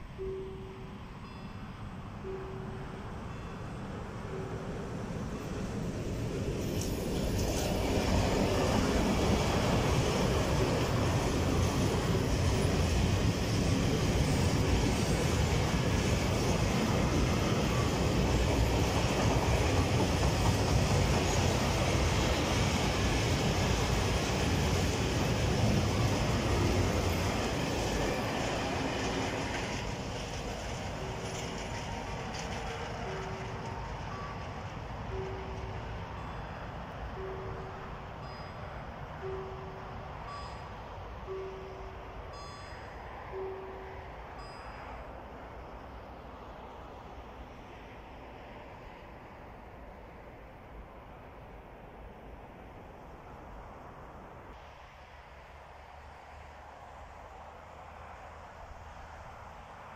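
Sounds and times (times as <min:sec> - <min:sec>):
crossing warning bell ringing: 0:00.0 - 0:46.6
train wheels clacking over rail joints: 0:06.8 - 0:35.7.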